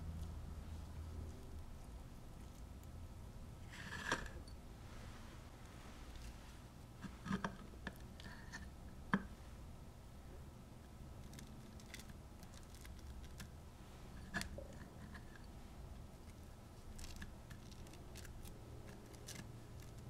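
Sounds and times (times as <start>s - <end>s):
plastic wrap crinkling: 11.2s - 13.5s, 16.2s - 20.0s.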